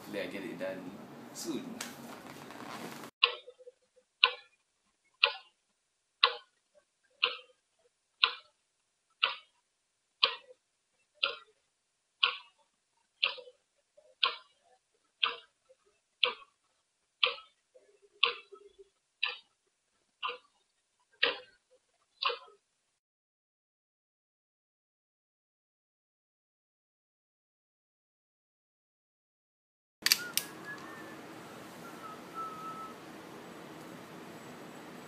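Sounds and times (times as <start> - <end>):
clock ticking: 3.2 - 4.6, 5.2 - 5.6, 6.2 - 7.6, 8.2 - 8.6, 9.2 - 9.6, 10.2 - 10.6, 11.2 - 11.6, 12.2 - 16.6, 17.2 - 19.6, 20.2 - 21.6, 22.2 - 22.6.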